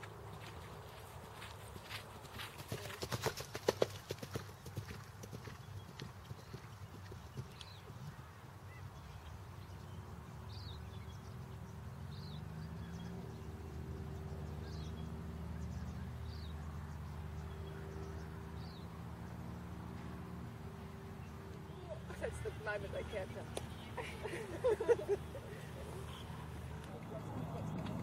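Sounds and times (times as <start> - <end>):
horse galloping hoofbeats: 0.8 - 8.2
low engine hum: 9.7 - 28.0.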